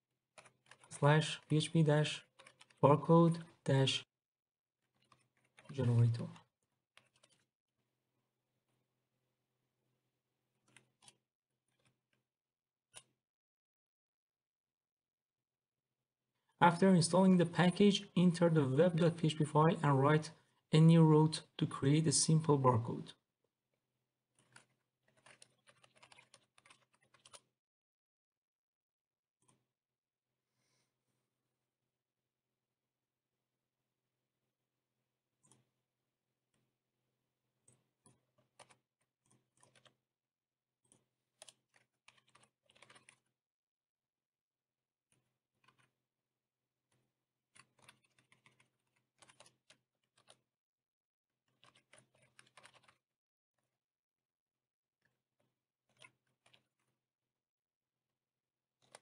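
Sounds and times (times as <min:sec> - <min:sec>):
computer keyboard typing: 0:00.4 - 0:03.5, 0:07.0 - 0:07.4, 0:24.4 - 0:27.4, 0:38.4 - 0:40.0, 0:40.9 - 0:43.2, 0:47.6 - 0:50.4, 0:51.5 - 0:53.0.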